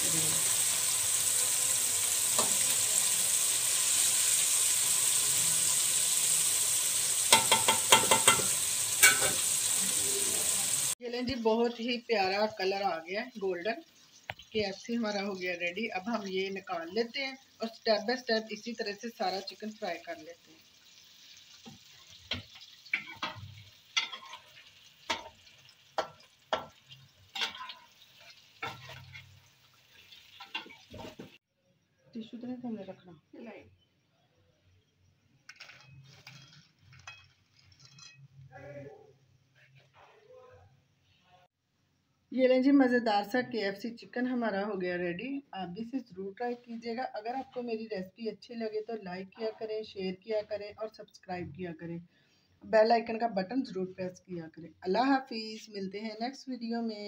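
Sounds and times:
chicken deep-frying in oil: 0.0s - 31.4s, 35.4s - 38.4s
spoons scraping a metal wok: 0.4s - 11.0s, 21.6s - 29.4s, 35.5s - 38.4s
metal spatula knocking on pan: 7.3s - 9.4s, 26.0s - 26.8s.

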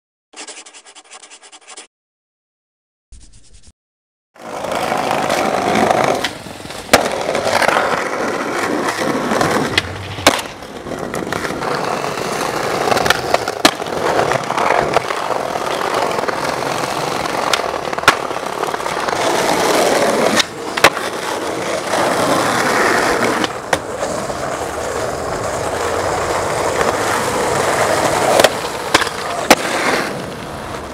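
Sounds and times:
skateboard clacks: 4.4s - 30.9s
skateboard wheels rolling on pavement: 4.4s - 30.9s.

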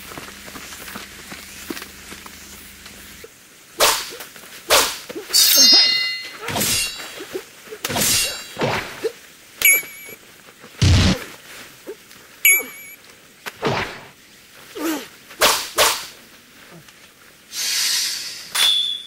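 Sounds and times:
sword swishes and hits: 3.8s - 7.3s, 7.9s - 9.0s, 13.6s - 14.1s
metallic blade clangs: 5.3s - 7.3s, 7.9s - 8.6s.

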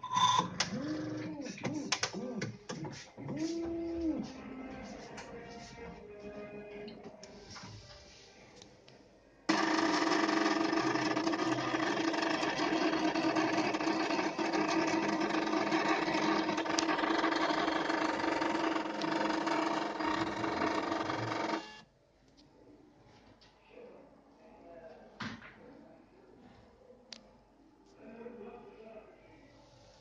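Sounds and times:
analyzer motor hum: 9.5s - 21.8s.

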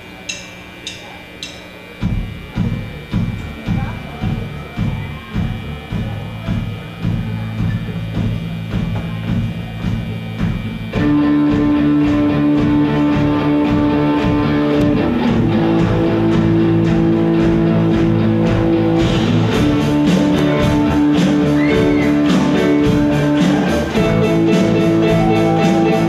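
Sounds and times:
rock band playing: 1.7s - 26.0s.

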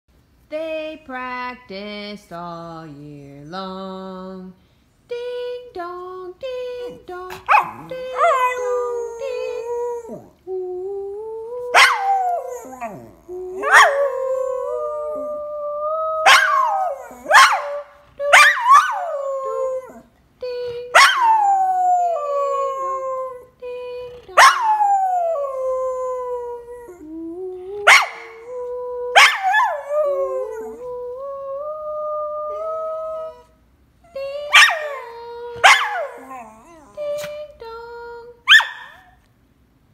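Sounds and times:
dog howling: 11.0s - 20.0s.

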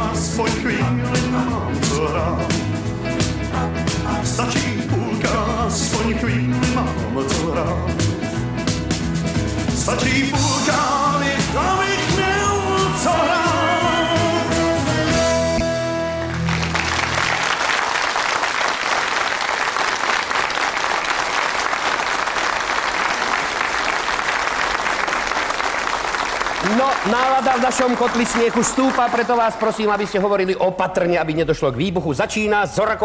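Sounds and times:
pop-rock band playing: 0.0s - 17.4s
audience applause: 16.1s - 30.2s.

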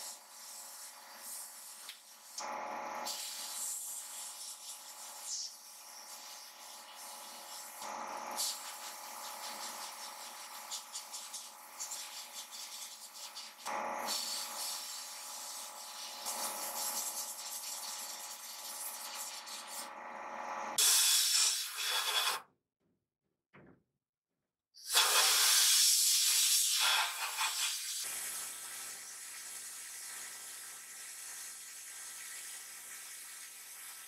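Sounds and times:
sandblast gun hissing bursts: 20.8s - 22.4s, 24.9s - 33.8s.

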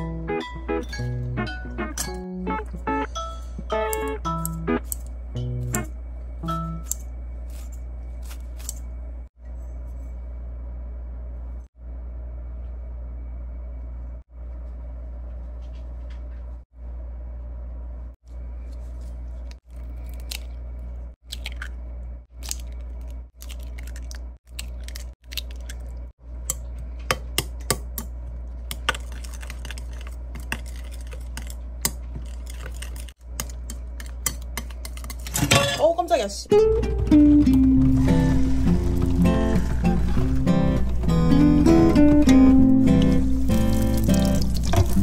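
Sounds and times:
steady low hum: 0.0s - 35.4s
eggs cracking into bowl: 19.7s - 35.4s.

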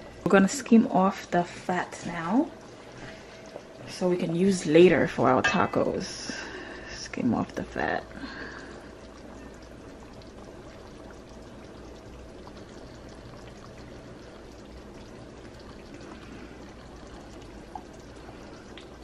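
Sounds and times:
broth bubbling in pot: 0.0s - 19.0s
ladle skimming liquid: 7.6s - 19.0s.

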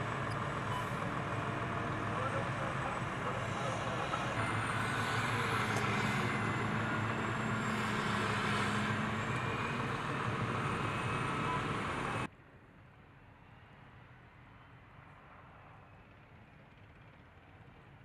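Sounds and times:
tracked vehicle driving: 0.0s - 12.3s.

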